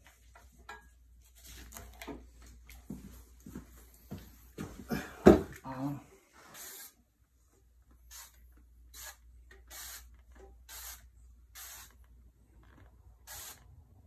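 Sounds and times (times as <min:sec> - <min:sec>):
hissing spray bursts: 0:06.5 - 0:07.0, 0:08.1 - 0:10.1, 0:10.7 - 0:12.0, 0:13.3 - 0:13.7.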